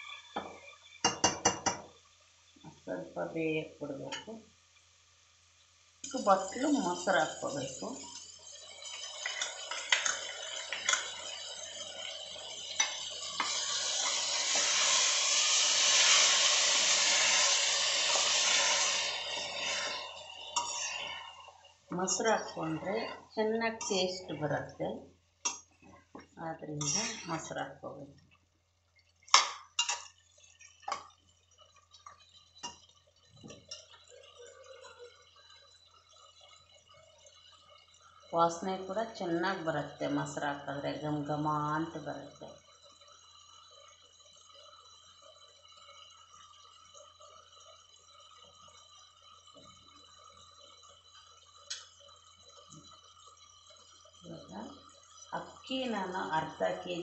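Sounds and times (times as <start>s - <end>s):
faint hiss and hum: 0.0s - 57.0s
steel spoon clinking in pot: 6.1s - 14.1s, 29.3s - 30.2s.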